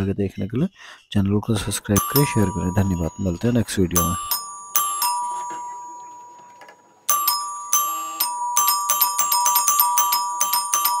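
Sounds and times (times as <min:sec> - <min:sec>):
electric doorbell chiming: 0:02.0 - 0:11.0.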